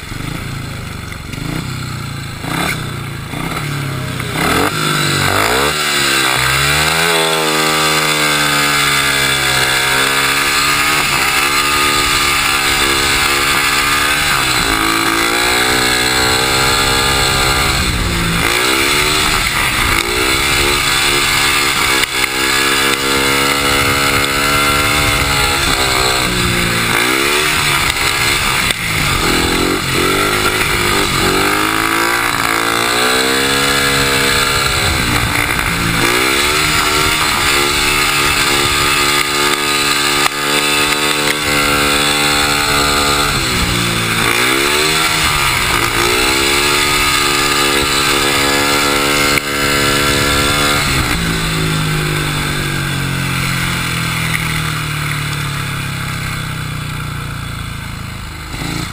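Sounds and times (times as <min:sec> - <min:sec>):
motorcycle engine revving: 0:00.0 - 0:58.9
wind noise: 0:09.9 - 0:54.0.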